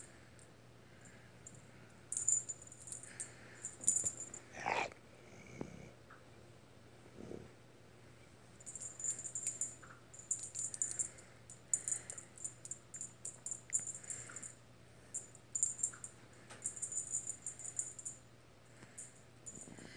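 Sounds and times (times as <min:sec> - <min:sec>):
cat toy jingling: 0:08.6 - 0:14.6, 0:15.2 - 0:18.2.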